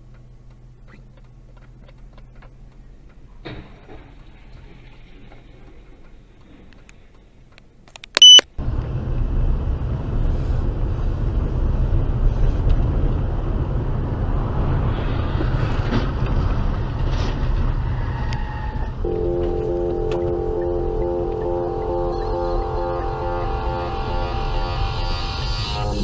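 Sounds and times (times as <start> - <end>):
high-pitched electronic beep: 8.2 - 8.4, 19.1 - 26.0
car driving on a wet road: 8.6 - 21.8.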